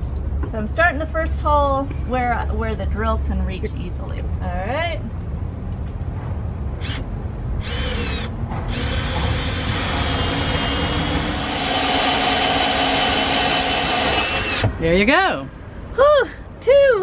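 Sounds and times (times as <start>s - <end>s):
cordless drill boring into wood: 6.8s - 7.0s, 7.6s - 14.8s.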